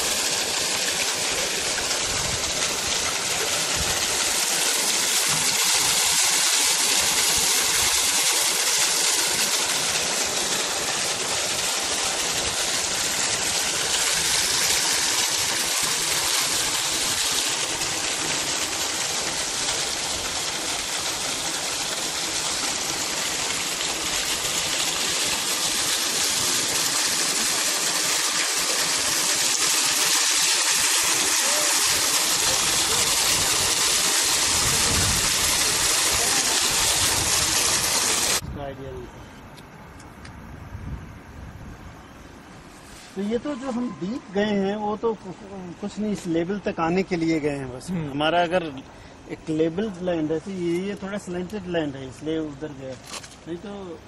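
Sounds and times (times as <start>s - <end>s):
running water hissing: 0.0s - 38.4s.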